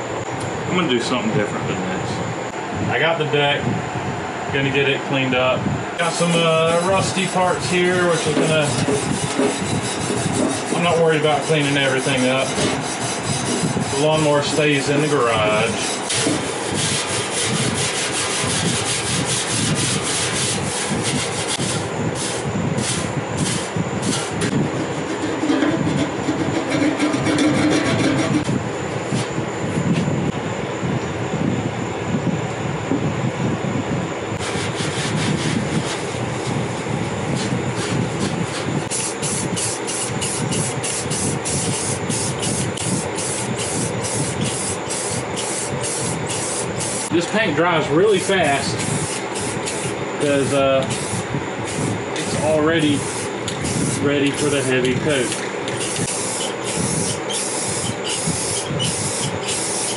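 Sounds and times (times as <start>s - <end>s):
abrasive pad scrubbing steel: 6.0s - 28.6s
aerosol can spraying in pulses: 38.9s - 47.1s, 48.8s - 52.0s, 52.9s - 59.9s.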